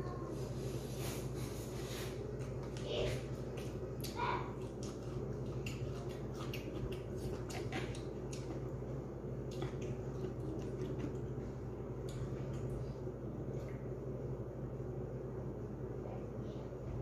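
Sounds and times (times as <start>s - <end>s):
steady low hum: 0.0s - 17.0s
person chewing food: 3.4s - 12.9s.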